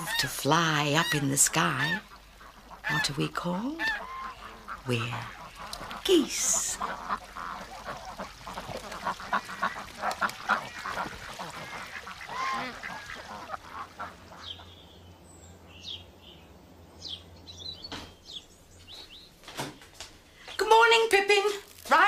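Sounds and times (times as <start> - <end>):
geese honking: 0.0 - 14.8
small birds chirping: 0.0 - 21.8.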